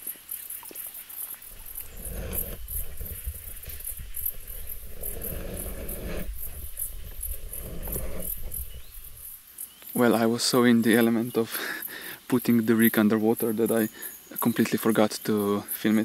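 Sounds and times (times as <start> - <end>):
insects chirping: 0.0 - 16.0
water rumbling and swirling: 1.4 - 9.4.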